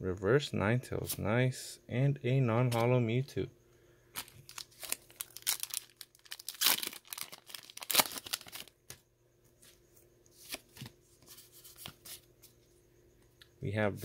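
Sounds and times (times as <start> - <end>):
foil wrapper tearing and crinkling: 4.2 - 8.8.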